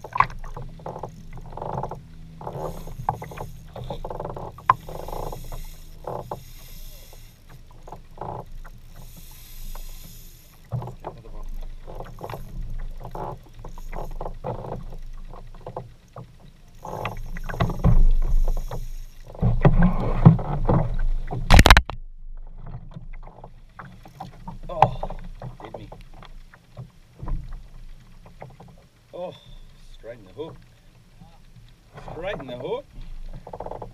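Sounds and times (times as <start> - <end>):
water slapping against kayak hull: 0.0 - 6.5, 14.1 - 28.8
fishing reel rattling: 0.0 - 19.4.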